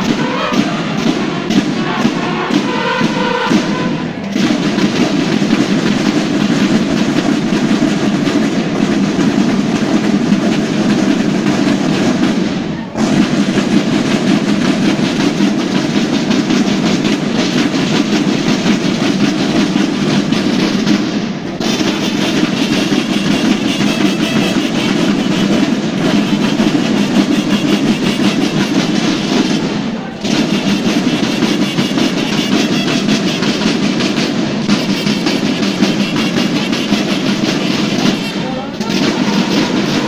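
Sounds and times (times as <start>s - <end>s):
massed snare drums: 0.0s - 40.0s.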